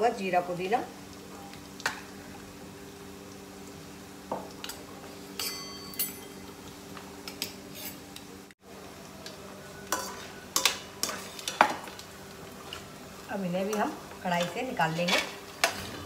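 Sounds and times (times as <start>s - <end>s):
metal spoon clinking on dish: 5.4s - 6.4s.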